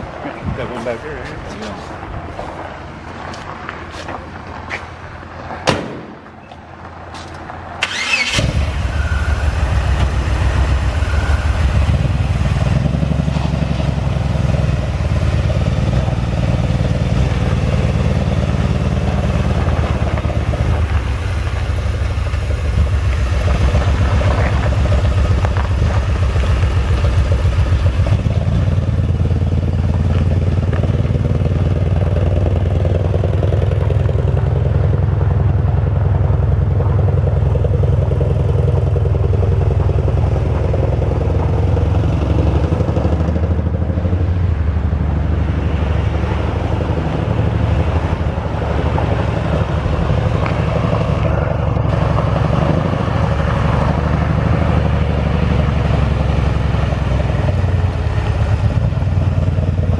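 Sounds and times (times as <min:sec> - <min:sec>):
car engine cranking and idling: 0:00.0 - 0:59.9
thump: 0:05.6 - 0:06.2.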